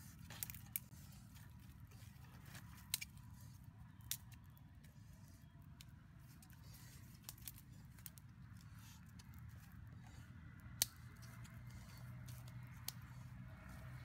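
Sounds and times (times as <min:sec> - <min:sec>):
twig fire crackling: 0:00.0 - 0:14.0
sticks snapping: 0:00.2 - 0:00.9, 0:02.5 - 0:03.3, 0:03.9 - 0:04.5, 0:05.7 - 0:14.0.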